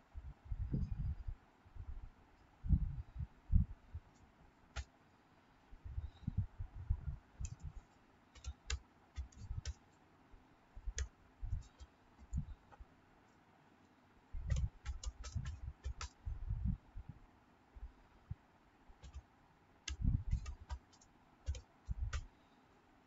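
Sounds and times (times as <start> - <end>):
computer keyboard typing: 8.4 - 9.8, 14.4 - 16.2, 19.0 - 19.2, 19.9 - 22.3.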